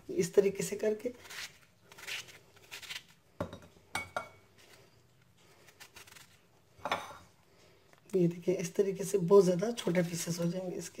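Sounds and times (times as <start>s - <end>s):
knife slicing apple: 0.6s - 3.2s, 5.5s - 6.5s.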